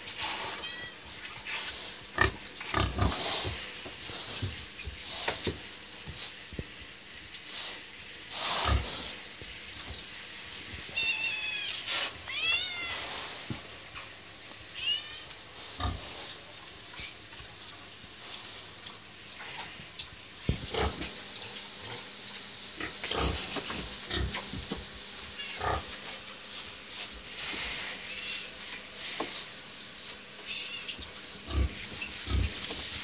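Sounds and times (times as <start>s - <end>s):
pigs moving in straw pen: 0.0s - 33.0s
cat meowing: 0.4s - 1.1s, 10.9s - 13.1s, 14.8s - 15.3s, 30.5s - 31.0s.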